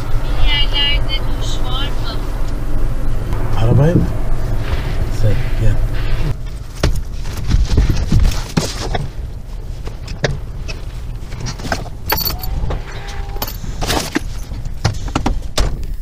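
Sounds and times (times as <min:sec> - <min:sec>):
low steady rumble: 0:00.0 - 0:16.0
keys jingling: 0:12.1 - 0:12.6, 0:13.4 - 0:14.6.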